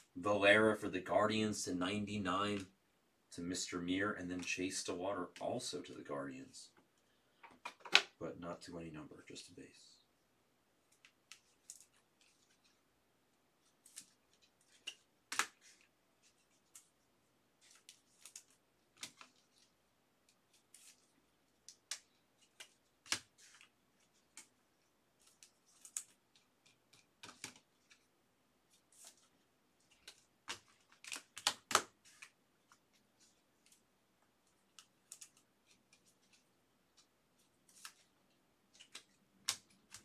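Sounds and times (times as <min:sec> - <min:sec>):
plastic sleeves crinkling: 0:28.7 - 0:33.8, 0:34.4 - 0:40.0.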